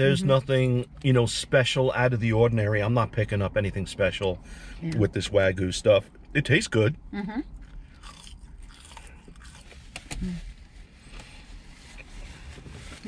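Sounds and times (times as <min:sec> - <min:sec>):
low steady hum: 0:00.0 - 0:13.0
people chewing food: 0:07.6 - 0:10.2.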